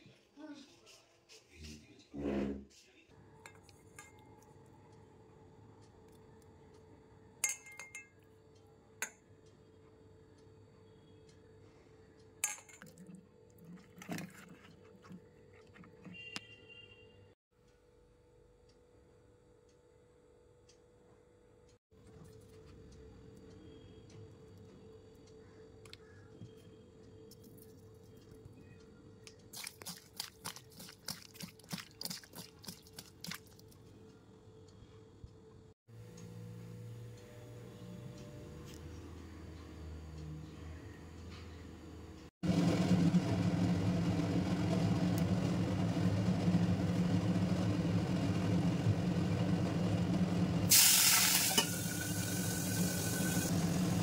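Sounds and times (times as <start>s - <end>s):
metal bowl clinking: 3.4s - 4.4s, 7.4s - 8.2s, 12.4s - 16.2s
fish mixed by hand in bowl: 29.6s - 33.8s.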